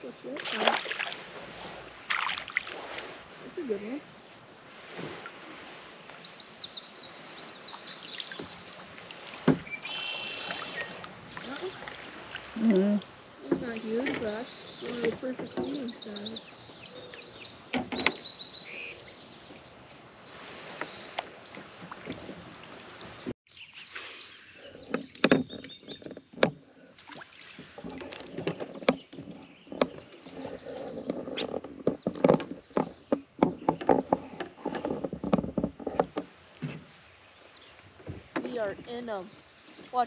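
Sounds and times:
paddle splashing water: 0.0 - 23.3, 23.9 - 40.0
bird chirping: 5.2 - 8.7, 9.5 - 11.9, 12.6 - 22.0, 22.6 - 28.0, 38.4 - 40.0.

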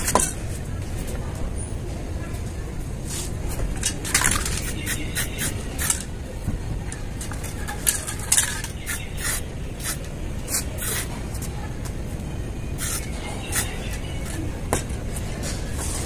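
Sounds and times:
spray paint can hissing: 4.1 - 6.1, 7.8 - 11.2, 12.8 - 14.4.

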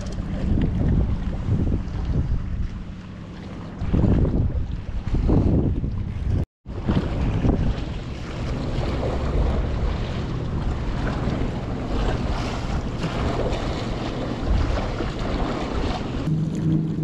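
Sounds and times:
wind buffeting microphone: 0.0 - 17.0
waves washing against rocks: 6.7 - 17.0.

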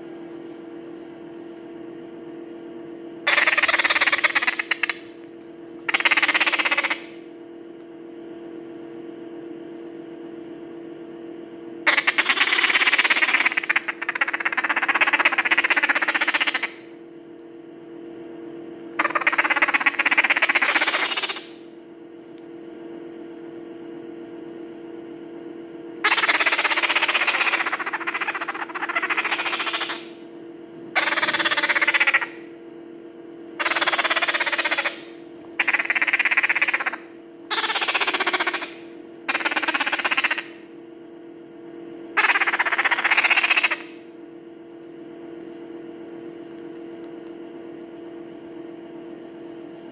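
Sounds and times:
parrot chicks begging calls: 3.3 - 5.2, 5.8 - 7.2, 11.9 - 16.9, 19.0 - 21.6, 26.0 - 30.2, 31.0 - 32.5, 33.6 - 40.6, 42.2 - 44.0.

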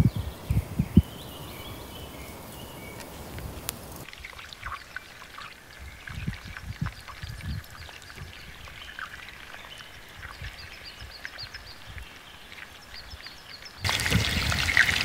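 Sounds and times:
embers crackling: 0.0 - 4.2, 12.4 - 15.0
oil trickling into a pot: 4.0 - 15.0.

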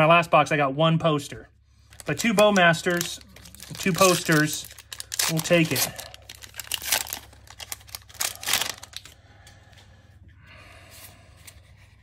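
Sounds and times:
cards rustling: 1.9 - 9.2
foil wrapper tearing and crinkling: 1.9 - 9.2.

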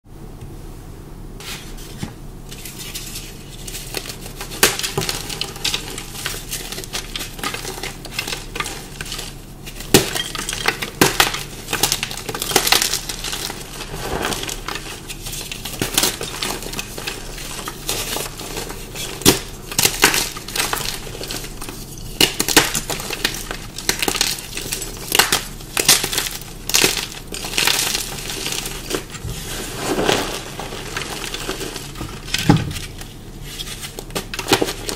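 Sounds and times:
chalk crunching: 27.4 - 32.3.

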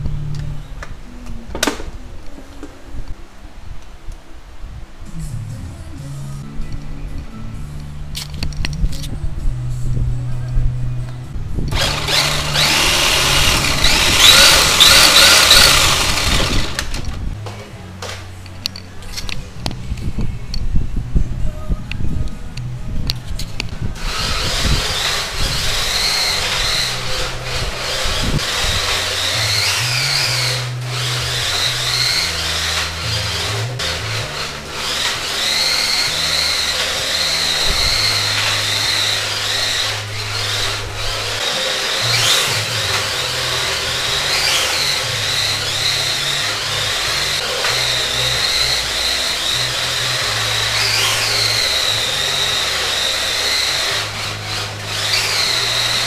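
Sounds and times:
electric motor whining: 11.7 - 17.4, 23.6 - 56.0.

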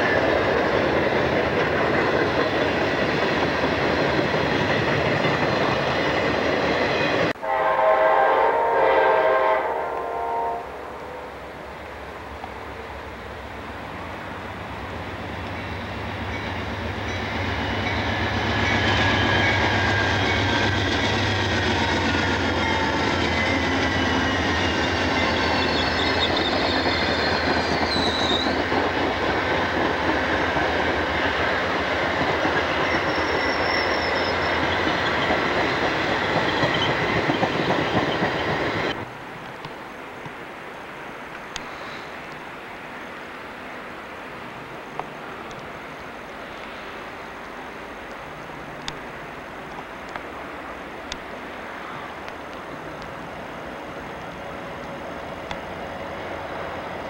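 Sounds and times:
locomotive engine hum: 0.0 - 57.0
train cars rumbling over rails: 0.0 - 57.0
high wheel squeals: 22.6 - 28.7, 32.7 - 39.0.

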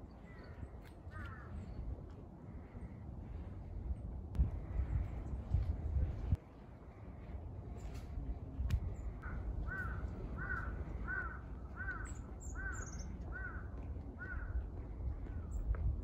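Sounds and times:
steady low rumble: 0.0 - 16.0
crow cawing: 1.1 - 1.5, 9.2 - 14.6.

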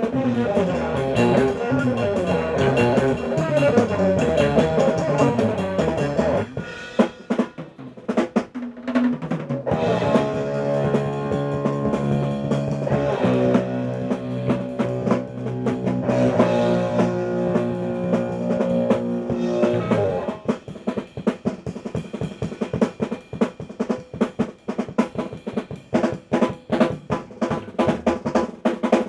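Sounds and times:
guitars and bass chords: 0.0 - 6.8, 9.6 - 20.5
drum kit: 0.0 - 29.0.

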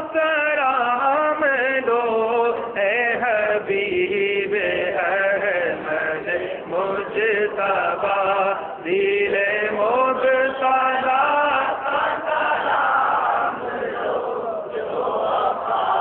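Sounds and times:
man chanting unaccompanied: 0.0 - 12.1.

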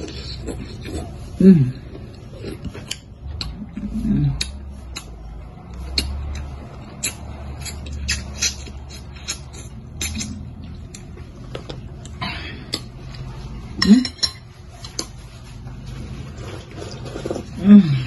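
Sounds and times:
sipping and chewing: 0.0 - 13.4
cutlery clinking on ceramic bowl: 13.8 - 14.5.

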